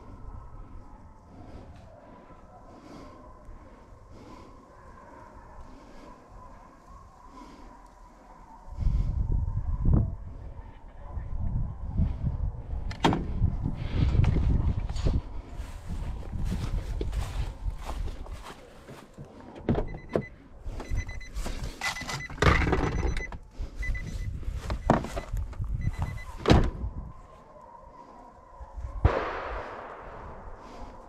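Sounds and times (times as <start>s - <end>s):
car door chime beeping: 19.8s - 24.2s.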